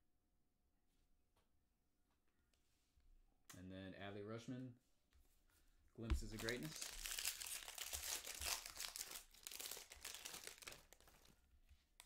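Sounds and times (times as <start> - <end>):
wrapper crinkling and tearing: 6.2 - 11.4.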